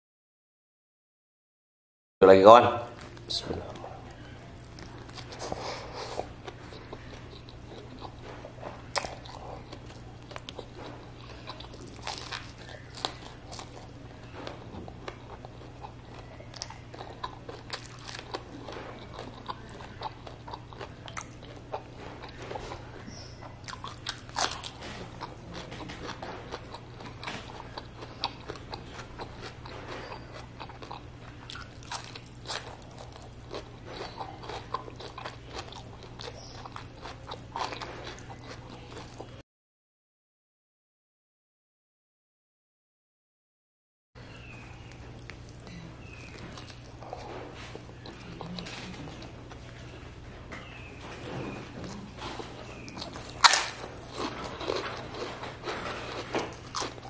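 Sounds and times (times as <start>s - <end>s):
crunchy chewing of food: 3.0s - 39.4s, 44.2s - 57.0s
steady low hum: 44.2s - 57.0s.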